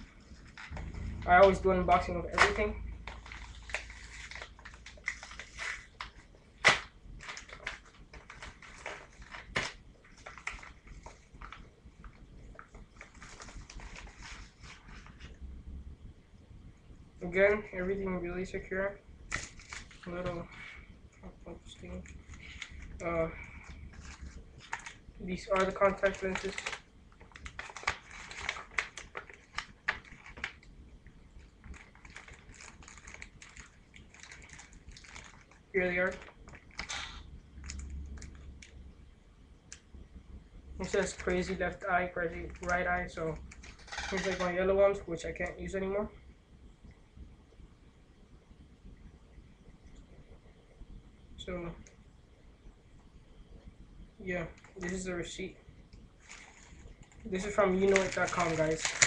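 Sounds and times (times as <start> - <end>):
padded mailer crinkling: 0.0 - 15.3, 22.0 - 30.7, 31.4 - 37.0, 42.3 - 44.5, 56.2 - 59.0
paper and plastic bag rustling: 0.0 - 15.4, 21.8 - 30.7, 31.4 - 38.6, 40.8 - 44.6, 56.2 - 59.0.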